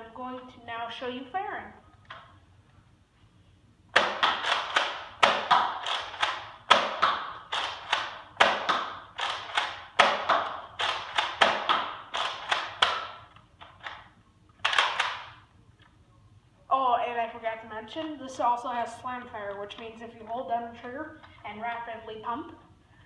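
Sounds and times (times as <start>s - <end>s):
toy blaster plastic clacks: 4.0s - 14.0s, 14.6s - 15.3s.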